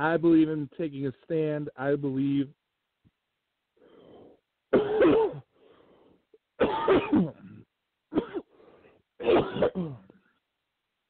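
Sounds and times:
man coughing: 4.7s - 5.5s, 6.6s - 8.5s, 9.2s - 10.2s.

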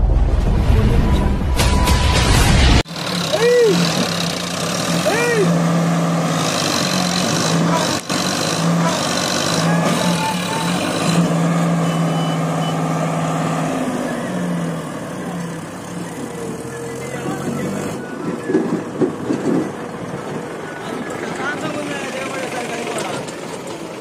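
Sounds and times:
diesel engines under heavy load: 1.6s - 24.0s.

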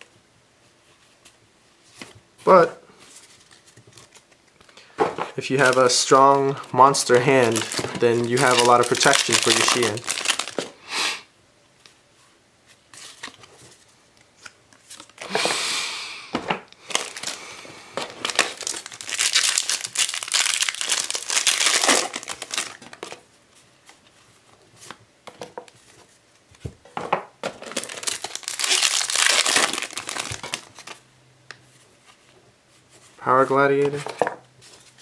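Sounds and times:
foil wrappers crinkling and tearing: 5.4s - 10.8s, 16.8s - 17.4s, 18.0s - 23.2s, 27.6s - 31.0s.

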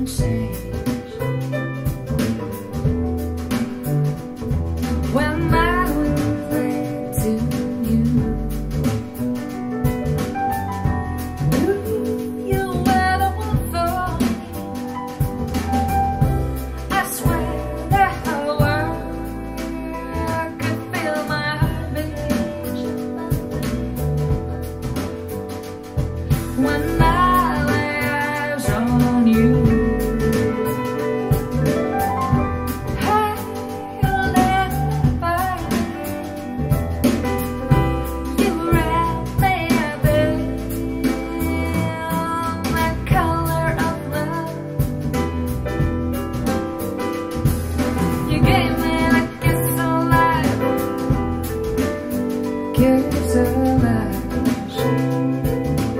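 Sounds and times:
woman singing: 0.0s - 2.9s, 5.1s - 9.2s, 10.8s - 15.2s, 16.2s - 24.4s, 26.3s - 31.6s, 32.7s - 37.0s, 37.7s - 45.2s, 48.1s - 55.9s
instruments with bass line: 0.0s - 55.9s.

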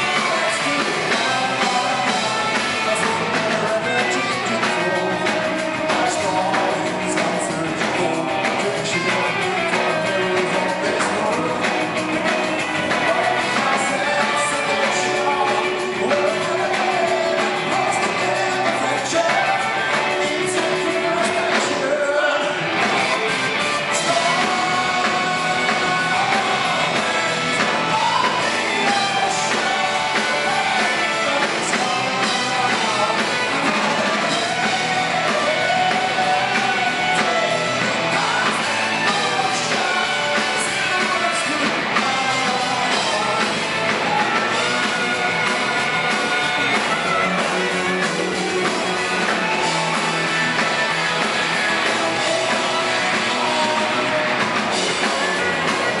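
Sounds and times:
live rock band playing: 0.0s - 56.0s
person singing lead vocal: 0.0s - 56.0s.

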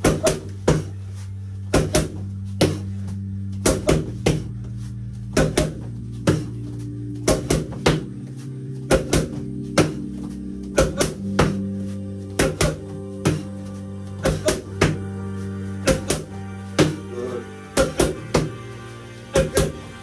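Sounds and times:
background music: 0.0s - 20.0s
boxing gloves smacking mitts: 1.7s - 3.0s, 5.3s - 6.5s, 8.9s - 11.7s, 12.4s - 13.6s.

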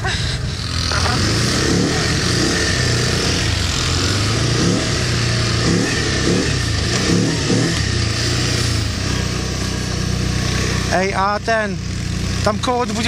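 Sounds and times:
atv engine revving: 0.0s - 13.0s.

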